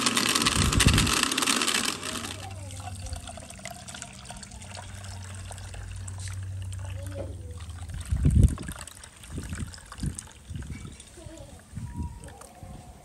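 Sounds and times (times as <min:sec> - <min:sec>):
electric blender running: 0:00.0 - 0:04.3
juice trickling through strainer: 0:00.0 - 0:12.6.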